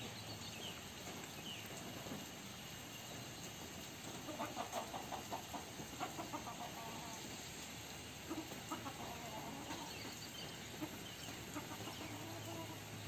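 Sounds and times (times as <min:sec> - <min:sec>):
chickens clucking: 0:03.5 - 0:13.0.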